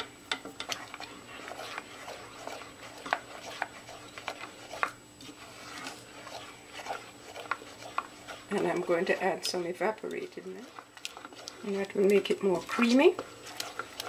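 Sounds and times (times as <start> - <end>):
bubbling porridge popping: 0.0 - 14.0
spoon stirring porridge in pan: 0.0 - 14.0.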